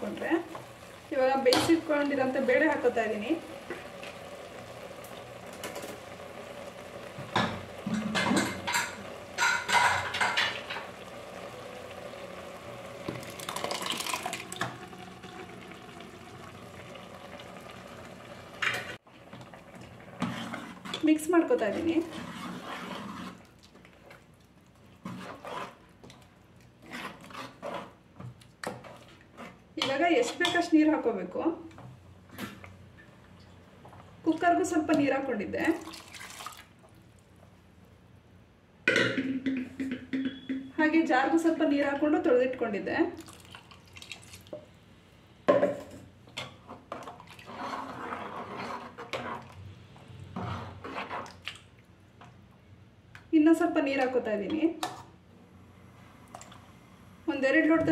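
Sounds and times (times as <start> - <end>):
ladle stirring in a metal pot: 7.4 - 11.1, 18.6 - 30.7, 46.3 - 49.6, 50.3 - 51.7
liquid sloshing: 35.7 - 36.7.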